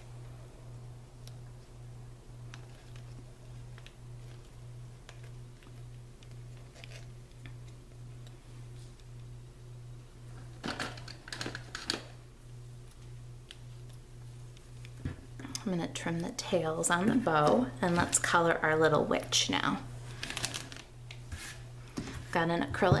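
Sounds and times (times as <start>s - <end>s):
plastic bag crinkling: 20.0s - 20.9s
twine and plastic bag rustling: 20.0s - 23.0s.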